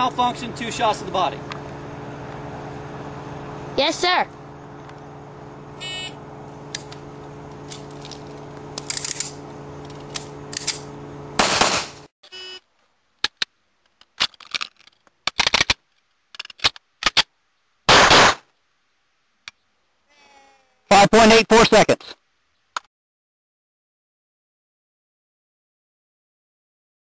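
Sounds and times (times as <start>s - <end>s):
steady low hum: 0.0s - 13.8s
gun handling clicks: 7.7s - 10.9s
pistol shot: 11.4s - 12.0s, 17.9s - 18.4s.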